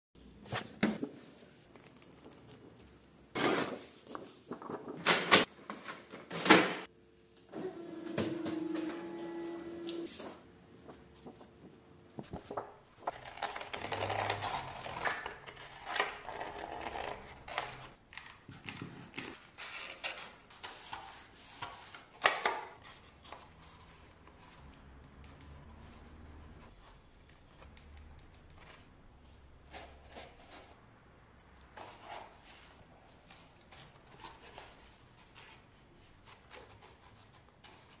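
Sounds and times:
paper rustling and crinkling: 3.4s - 6.1s, 8.6s - 24.6s.

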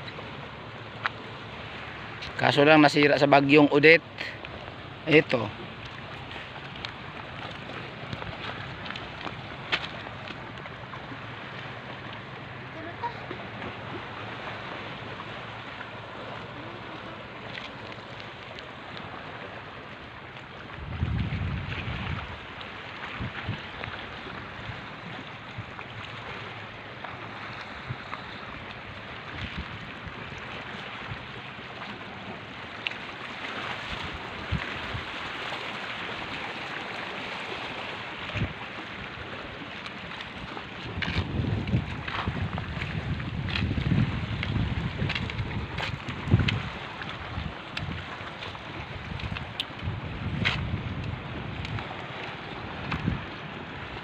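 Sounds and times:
wind and water: 0.0s - 54.0s
wind buffeting microphone: 20.7s - 22.5s, 23.1s - 24.8s, 27.8s - 31.3s, 40.3s - 54.0s.

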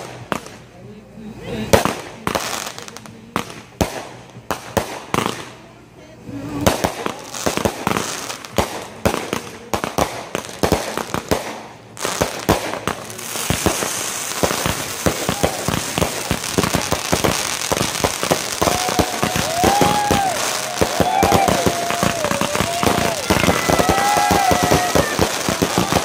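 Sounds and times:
fireworks bangs: 0.0s - 26.0s
fireworks crackle: 0.0s - 26.0s
sharp reports: 12.6s - 26.0s.

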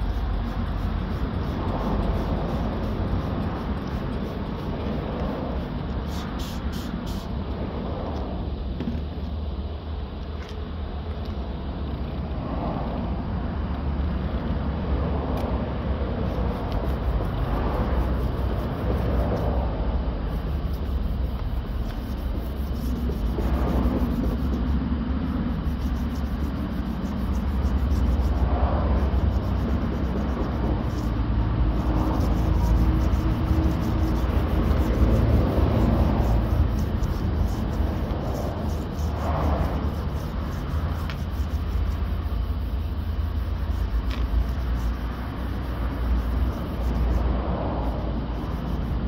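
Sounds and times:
sanding pad scuffing car panel: 0.0s - 7.4s, 16.2s - 19.6s, 20.3s - 49.0s
steady low rumble: 0.0s - 49.0s.

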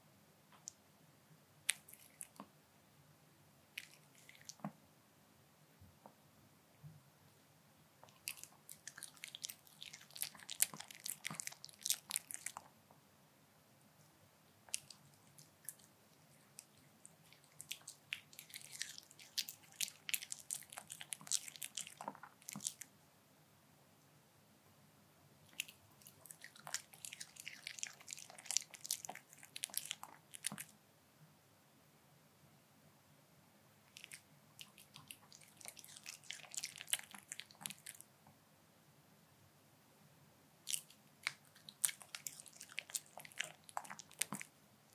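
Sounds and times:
dog chewing food: 8.0s - 12.7s, 14.7s - 22.9s, 25.5s - 30.7s, 33.9s - 38.0s, 40.7s - 44.5s.

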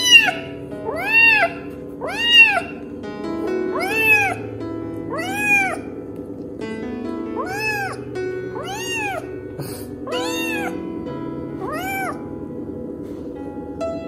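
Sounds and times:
kitten meowing: 0.0s - 2.9s, 3.7s - 4.4s, 5.1s - 5.9s, 7.4s - 8.0s, 8.6s - 9.3s, 10.0s - 10.8s, 11.6s - 12.2s
soft background music: 0.0s - 14.0s.

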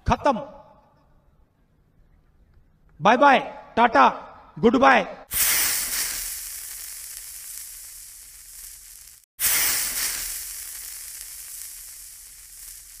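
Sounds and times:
hissing sparkle sound effect: 5.3s - 13.0s.

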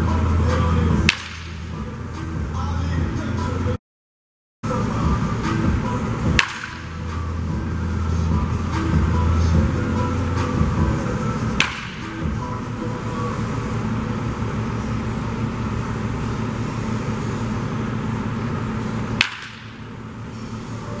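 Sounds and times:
background music: 0.0s - 3.8s, 4.7s - 21.0s
baseball bat hitting ball: 1.0s - 1.7s, 6.3s - 7.2s, 11.5s - 12.3s, 19.1s - 20.0s.

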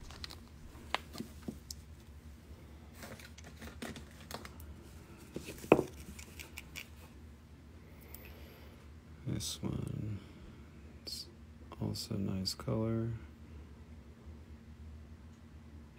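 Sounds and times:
plastic bag crinkling: 0.0s - 1.4s.

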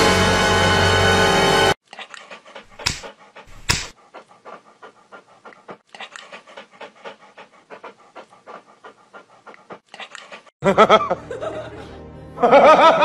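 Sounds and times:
dog panting: 1.9s - 10.6s.

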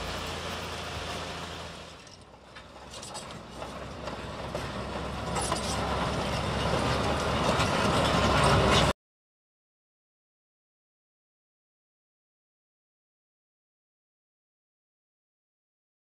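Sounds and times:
bulldozer running: 0.0s - 9.0s
bulldozer tracks clattering: 0.0s - 9.0s.

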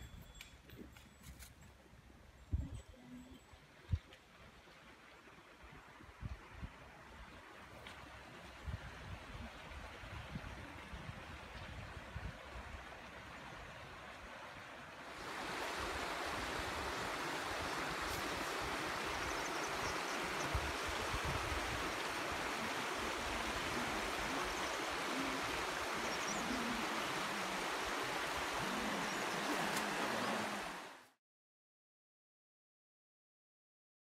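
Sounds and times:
wind rumble on microphone: 2.4s - 4.1s, 15.2s - 30.9s
river rushing over gravel: 13.0s - 31.0s.

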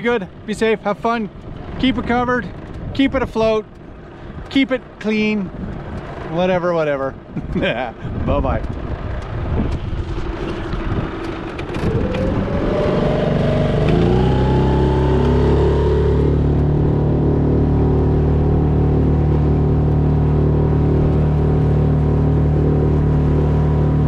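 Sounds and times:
outboard motor revving: 9.1s - 24.0s.

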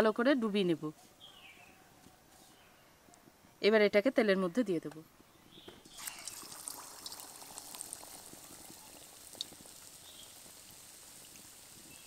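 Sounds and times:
battered food sizzling in hot oil: 5.9s - 12.0s.

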